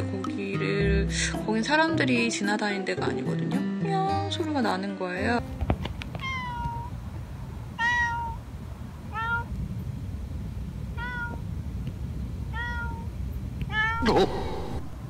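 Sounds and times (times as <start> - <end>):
cat meowing: 6.2 - 6.9, 7.8 - 8.4, 9.1 - 9.5, 11.0 - 11.4, 12.5 - 13.1, 13.7 - 14.9.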